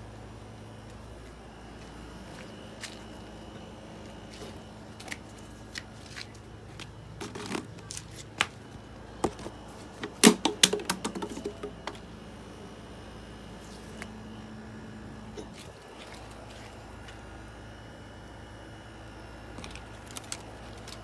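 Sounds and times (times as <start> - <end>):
plastic bottle crinkling: 9.3 - 12.0, 19.6 - 21.0.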